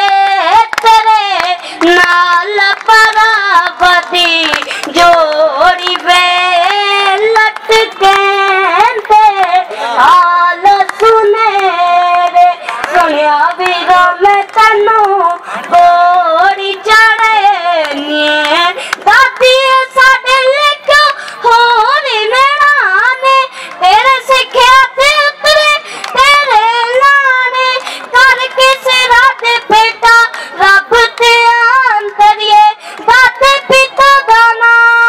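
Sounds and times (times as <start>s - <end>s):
boy singing into a microphone: 0.0s - 35.0s.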